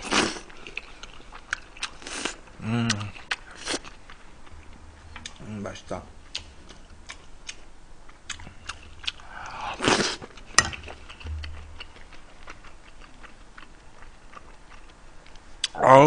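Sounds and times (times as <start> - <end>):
close chewing and mouth clicks: 0.0 - 5.4, 6.3 - 15.8.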